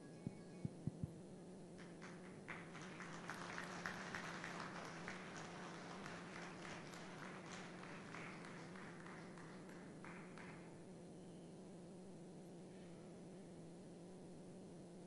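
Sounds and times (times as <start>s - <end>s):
low steady hum: 0.0s - 15.0s
hands clapping: 1.8s - 10.8s.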